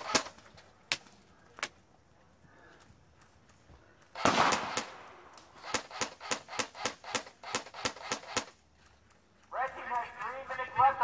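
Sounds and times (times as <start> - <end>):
airsoft gun firing: 0.0 - 0.4, 4.2 - 8.6.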